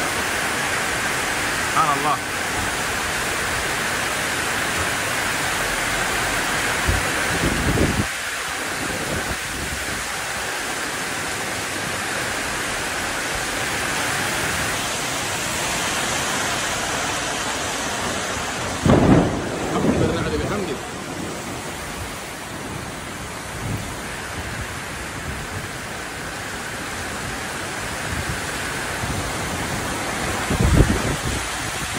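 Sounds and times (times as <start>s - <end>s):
heavy rain on metal roofs: 0.0s - 31.9s
low rumbles: 14.5s - 25.7s.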